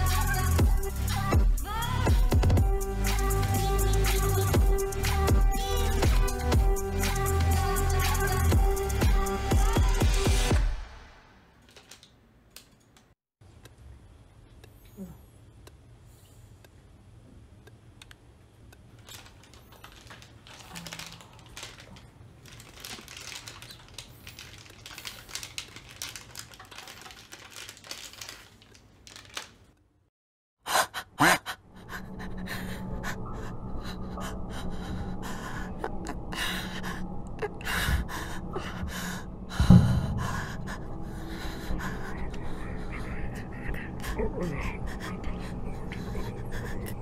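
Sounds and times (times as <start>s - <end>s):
steady low hum: 31.7s - 47.0s
person breathing: 31.8s - 47.0s
heavy thumps: 39.6s - 40.7s.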